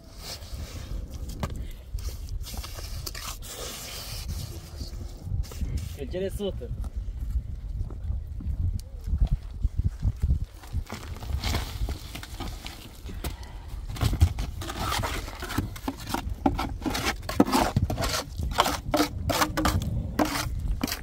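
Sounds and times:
scraping and rubbing strokes: 0.0s - 6.1s, 14.5s - 21.0s.

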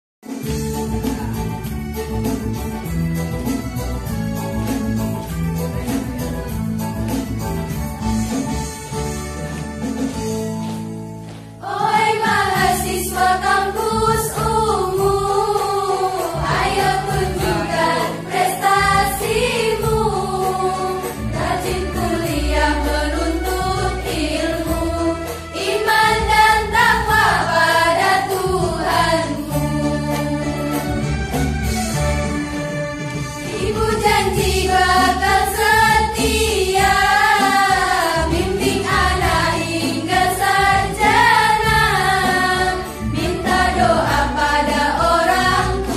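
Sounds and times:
keyboard backing: 0.3s - 45.9s
women's choir singing: 11.6s - 30.9s, 33.5s - 45.9s.

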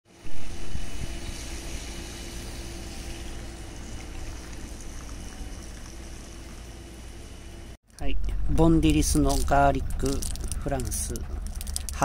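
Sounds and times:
outdoor rumble and hiss: 0.1s - 12.0s.

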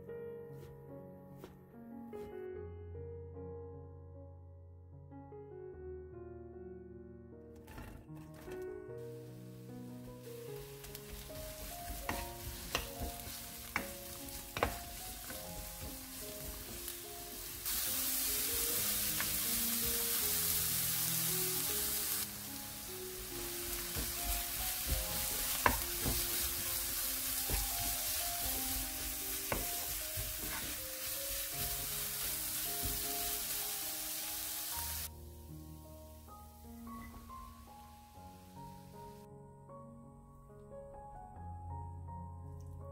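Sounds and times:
vegetables sizzling in oil: 9.3s - 35.1s
wooden spoon knocking on pan: 10.9s - 17.8s, 23.2s - 33.6s.

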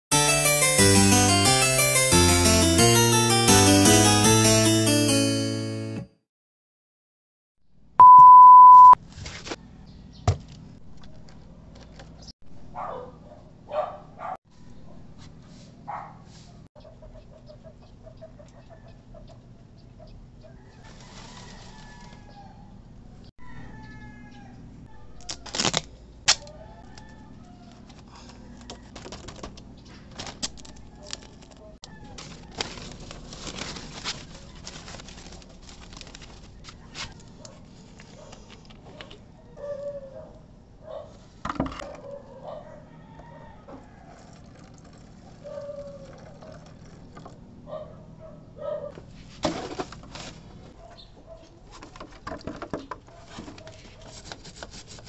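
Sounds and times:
rooster crowing: 20.6s - 22.8s, 23.4s - 25.5s, 26.4s - 28.9s, 42.5s - 44.3s.

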